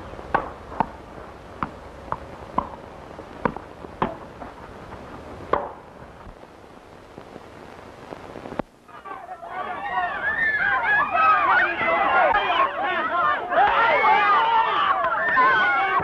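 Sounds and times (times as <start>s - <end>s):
film soundtrack hiss: 0.0s - 16.0s
tennis ball struck and bouncing: 0.3s - 1.0s, 1.6s - 2.8s, 5.5s - 5.8s.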